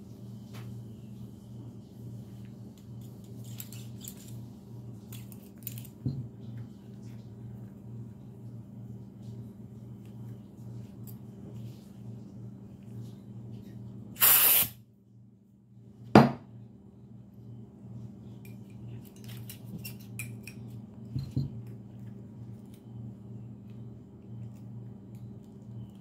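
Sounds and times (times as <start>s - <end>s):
small clicks and rubbing: 5.0s - 7.3s
aerosol spray hissing: 14.2s - 14.8s.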